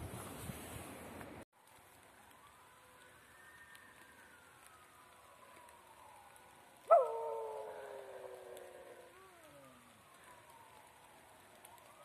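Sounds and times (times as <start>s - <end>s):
faint drawn-out wail: 2.3s - 12.0s
dog howling: 6.9s - 10.1s.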